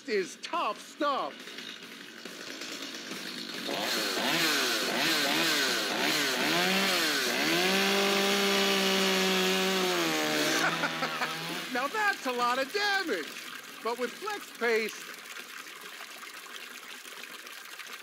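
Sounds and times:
chainsaw revving: 0.7 - 13.2.

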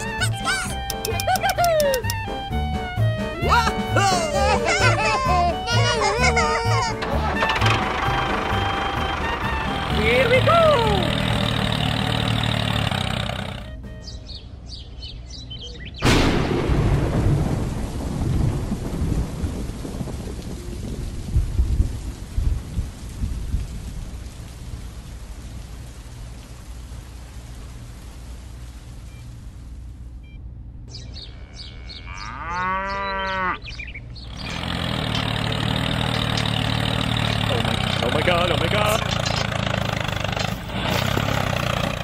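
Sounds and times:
engine running: 0.0 - 14.6, 34.0 - 42.0
birds chirping faintly: 8.2 - 16.0, 30.2 - 40.5
loud thunderclap: 16.0 - 23.7
steady rain: 16.2 - 30.2
cow mooing: 31.2 - 33.7.

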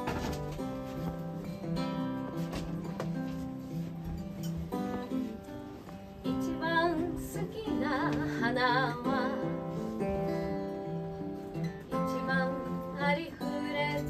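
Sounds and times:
acoustic guitar strumming: 0.0 - 14.0
woman singing: 6.2 - 14.0.

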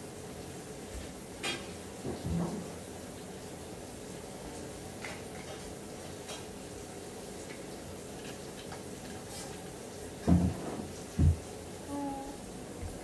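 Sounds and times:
dull low thumps: 11.2 - 11.4.

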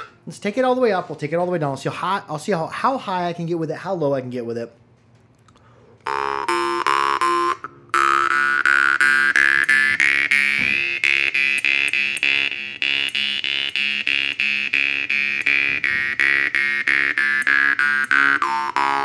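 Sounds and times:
jaw harp plucking: 0.0 - 0.3, 6.0 - 19.0.

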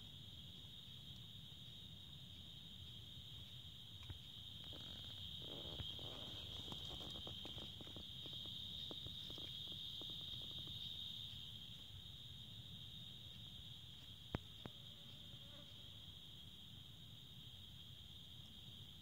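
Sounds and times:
night insects trilling: 0.0 - 19.0
faint rustles and clicks: 4.0 - 11.4.

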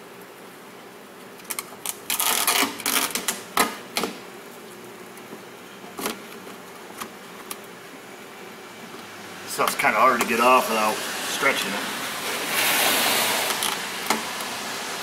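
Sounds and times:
plastic sheet crackling: 1.4 - 4.7.

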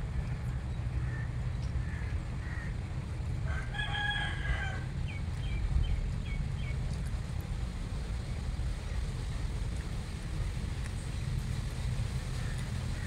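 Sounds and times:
wind rumble on microphone: 0.0 - 13.0
rooster crowing: 3.4 - 4.9.

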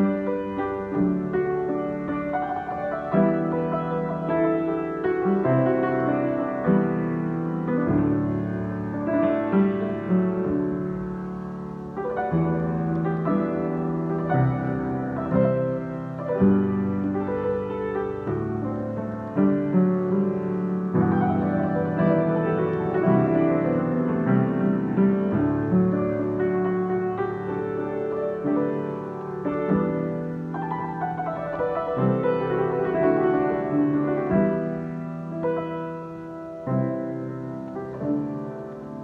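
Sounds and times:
piano improvisation: 0.0 - 39.0.

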